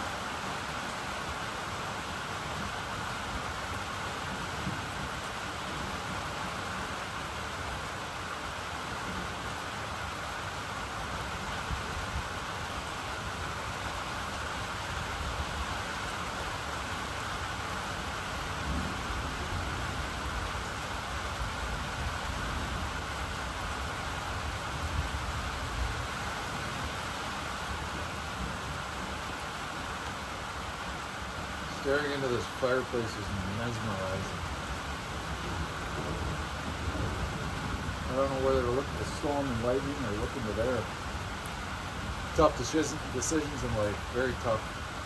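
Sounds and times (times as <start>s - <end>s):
steady rain falling: 0.0s - 45.0s
low thunder rumble: 33.6s - 40.5s.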